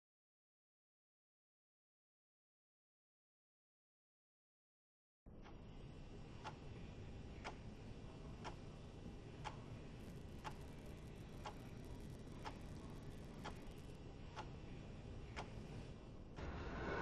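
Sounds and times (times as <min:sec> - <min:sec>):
faint steady ticking: 0:05.3 - 0:16.4
low background hum: 0:05.3 - 0:17.0.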